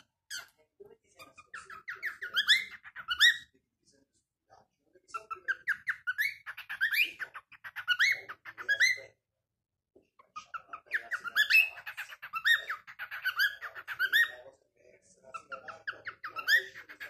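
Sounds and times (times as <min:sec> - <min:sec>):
cockatiel chirping and whistling: 0:01.3 - 0:03.5, 0:05.2 - 0:09.0, 0:10.4 - 0:14.4, 0:15.4 - 0:17.0.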